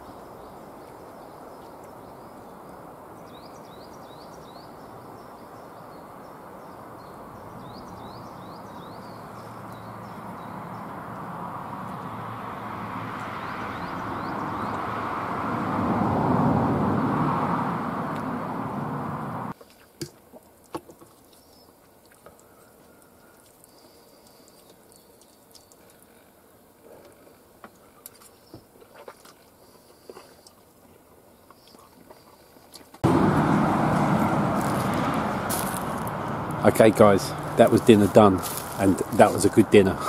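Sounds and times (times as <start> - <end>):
road vehicle passing: 6.2 - 19.6, 33.0 - 40.0
loud outdoor noise rush: 8.7 - 19.5, 33.0 - 40.0.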